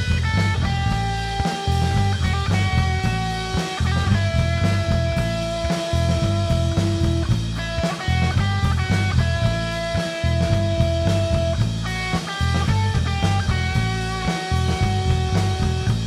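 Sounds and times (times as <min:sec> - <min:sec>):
bass guitar: 0:00.0 - 0:16.0
drum kit: 0:00.0 - 0:16.0
electric guitar lead line: 0:00.0 - 0:16.0.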